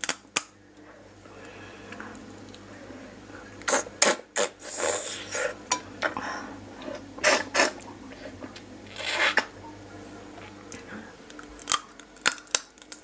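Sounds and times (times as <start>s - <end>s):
wet sucking and slurping: 3.7s - 5.6s, 6.9s - 7.8s, 8.9s - 9.5s
crab shell crackles: 11.2s - 13.0s.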